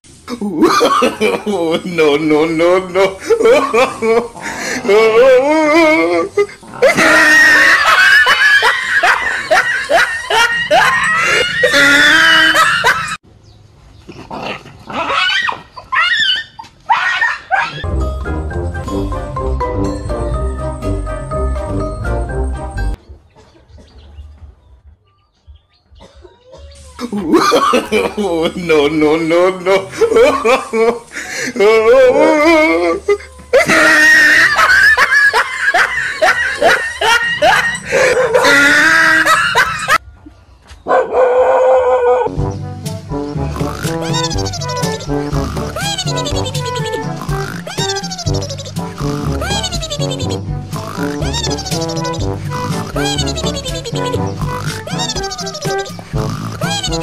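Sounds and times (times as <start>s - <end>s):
loud human laughter: 0.3s - 13.2s, 27.0s - 40.0s, 43.7s - 55.9s, 56.5s - 57.0s
dog growling and barking: 6.6s - 7.4s, 37.4s - 38.6s
loud shrill cry: 10.5s - 13.2s, 36.6s - 40.0s.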